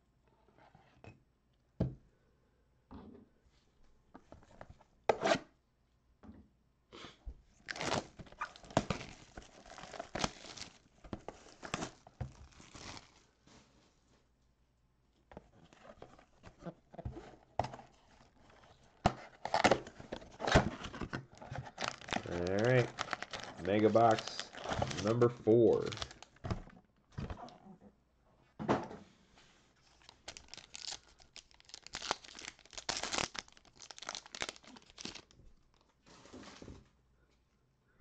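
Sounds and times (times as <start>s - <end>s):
plastic shrink wrap tearing: 7.6s - 10.8s, 11.5s - 13.3s, 21.7s - 26.4s, 30.0s - 35.3s.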